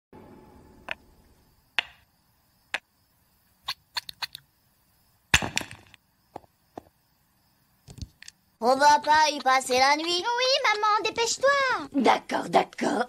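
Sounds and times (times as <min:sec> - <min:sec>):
wooden toy blocks knocking: 0:01.8 - 0:02.0
stacked blocks clattering down: 0:05.4 - 0:06.0.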